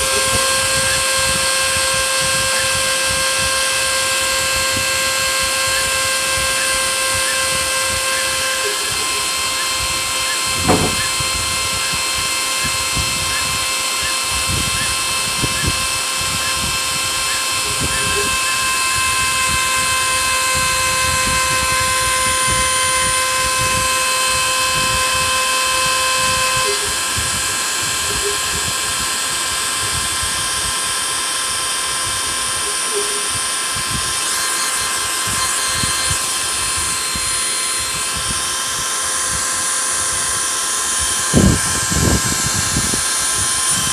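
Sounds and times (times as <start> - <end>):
router spindle whining: 0.0 - 43.9
dull knocks: 10.6 - 11.2.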